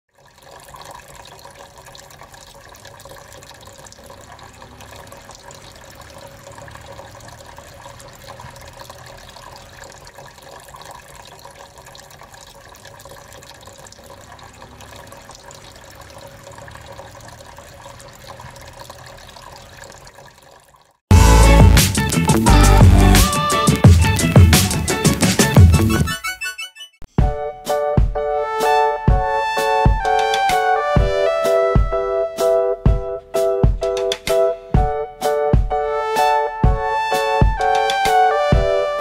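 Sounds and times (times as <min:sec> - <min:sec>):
fountain water trickling: 0:00.1 - 0:25.8.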